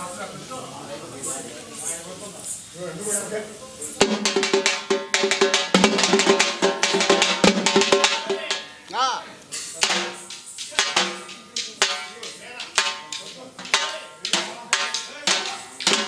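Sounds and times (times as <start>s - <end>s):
rapid drumming: 3.9s - 16.0s.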